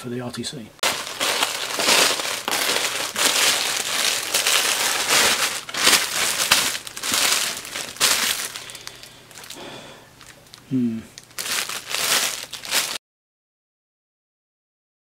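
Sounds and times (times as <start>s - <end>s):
plastic packaging crinkling: 0.8s - 13.0s.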